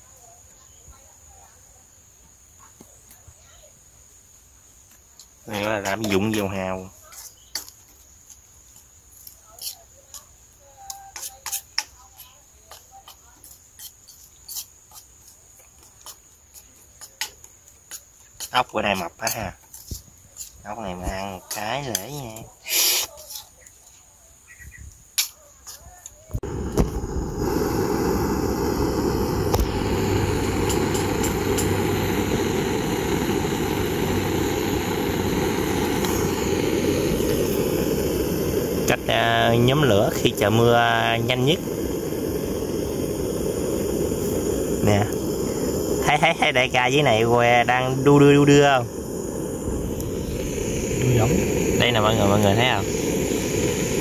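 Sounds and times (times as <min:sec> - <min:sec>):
insect trill: 0:00.0 - 0:54.0
gas torch hissing: 0:04.8 - 0:06.9, 0:16.0 - 0:23.5, 0:25.2 - 0:54.0
faint crackles: 0:25.0 - 0:54.0.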